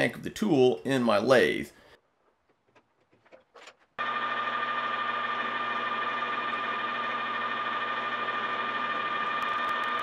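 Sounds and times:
metal lathe whining: 4.0 - 10.0.

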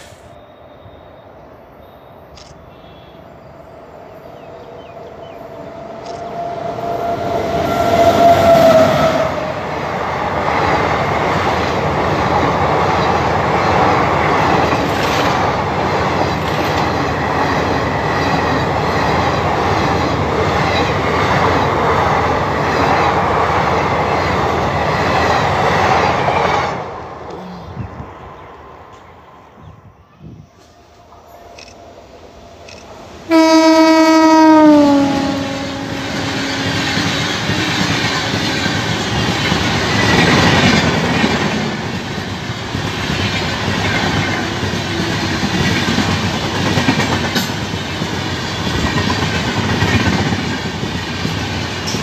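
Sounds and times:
sustained locomotive tone: 0.0 - 10.4, 15.6 - 42.6
train coaches rushing past: 3.2 - 52.0
wheels clickety-clack on rail joints: 10.2 - 26.7, 36.2 - 52.0.

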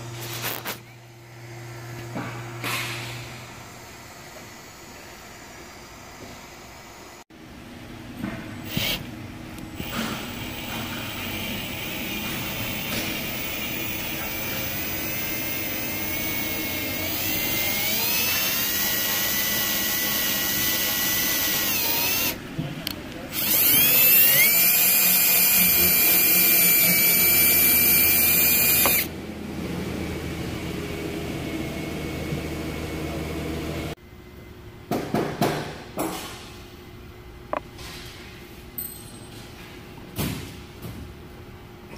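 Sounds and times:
cordless drill whining: 8.6 - 9.0, 11.2 - 22.4, 23.3 - 29.1.

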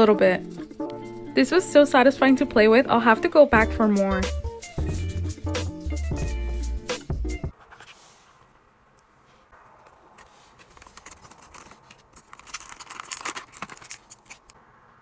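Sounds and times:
cardboard and plastic crinkling: 10.2 - 14.6.

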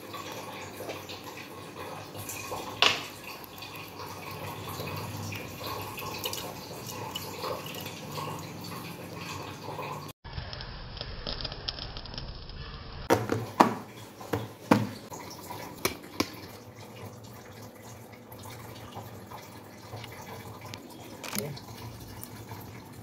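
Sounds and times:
water pouring into metal pot: 0.0 - 10.2, 13.5 - 23.0.

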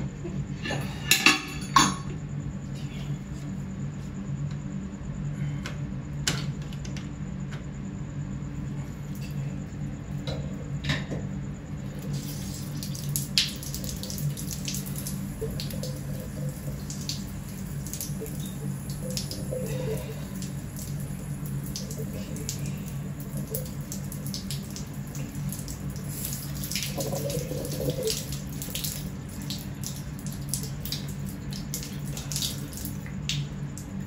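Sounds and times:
water spraying and splashing: 11.8 - 34.0.

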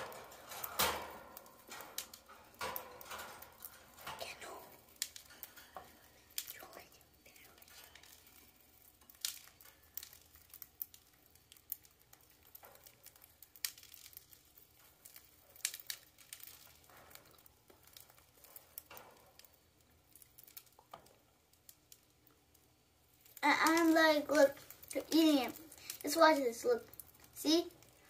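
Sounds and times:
millet spray rustling: 23.1 - 28.0.

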